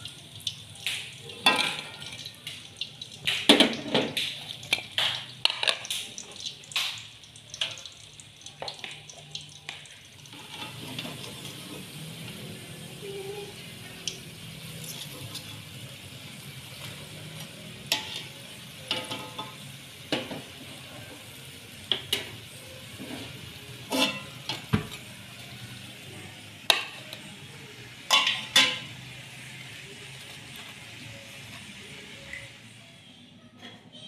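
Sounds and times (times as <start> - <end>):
oil sizzling in a wok: 0.0 - 33.0
metal spatula scraping a wok: 10.3 - 12.1, 14.6 - 15.9, 22.9 - 24.7.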